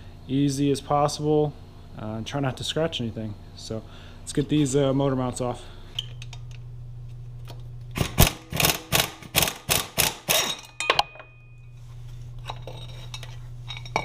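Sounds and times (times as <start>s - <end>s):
steady low hum: 0.0s - 14.0s
hand ratchet clicking: 8.0s - 10.6s.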